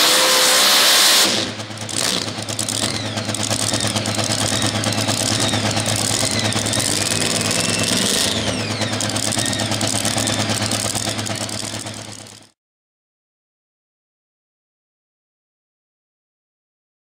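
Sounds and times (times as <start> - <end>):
supercharged truck engine running: 0.0 - 12.6.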